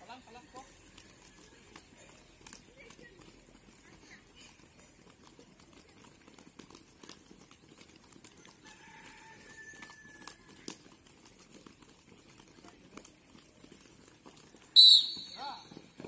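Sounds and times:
children's feet running on grass: 0.0s - 16.0s.

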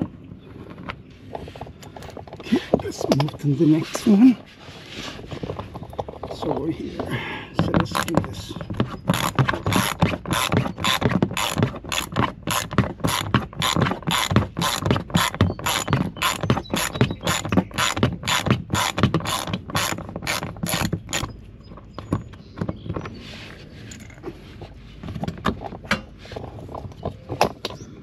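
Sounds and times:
hand ratchet clicking: 9.1s - 21.3s.

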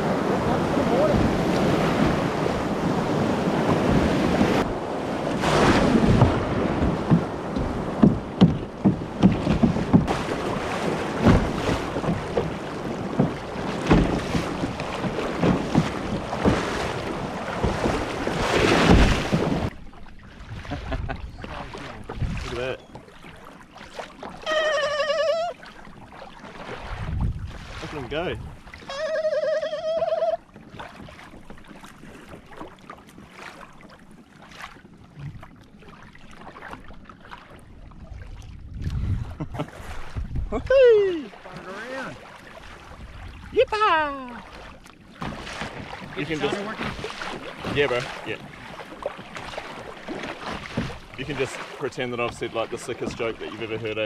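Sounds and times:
ocean surf breaking: 0.0s - 19.7s, 26.4s - 30.3s, 39.6s - 44.6s, 45.2s - 54.0s
wind buffeting microphone: 0.0s - 19.7s, 20.4s - 22.8s, 26.8s - 28.7s, 37.8s - 42.2s, 42.8s - 44.4s
calm water: 0.0s - 54.0s
water splashes: 0.0s - 54.0s.

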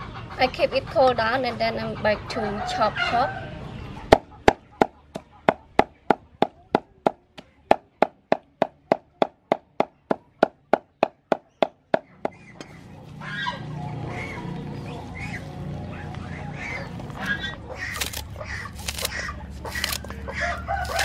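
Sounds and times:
cleaver chopping on wooden board: 4.1s - 12.7s
bird calls: 9.2s - 21.0s.

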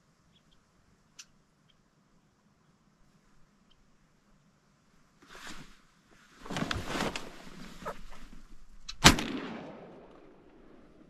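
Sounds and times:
rustling among reeds: 5.2s - 8.9s
shotgun shot: 9.0s - 11.0s.

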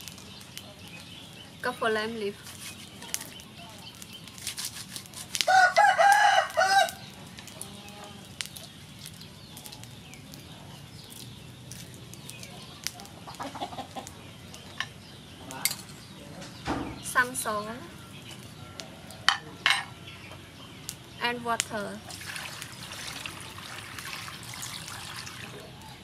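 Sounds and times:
rooster crowing: 5.4s - 7.0s.

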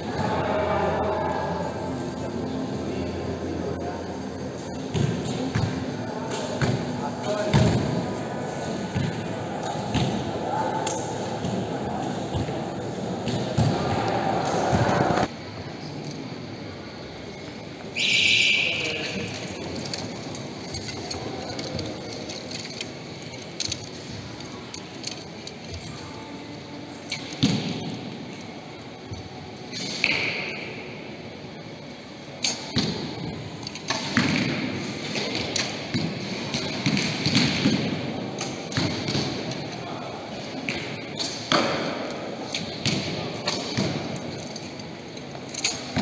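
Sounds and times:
low voices murmuring: 0.0s - 27.1s
sports hall background noise: 0.0s - 46.0s.

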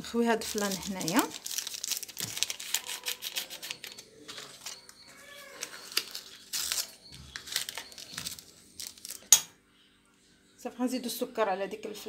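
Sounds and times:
paper sachets crinkling and tearing: 0.4s - 9.3s.

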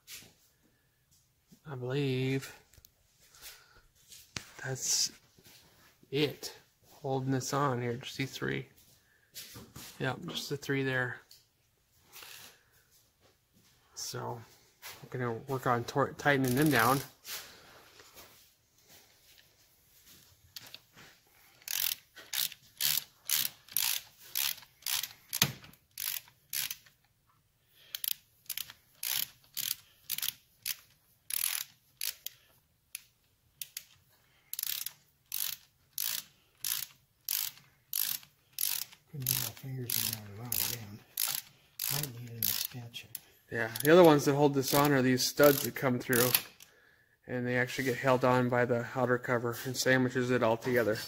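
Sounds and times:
hand ratchet clicking: 16.3s - 17.0s, 21.5s - 27.1s, 27.8s - 46.7s.

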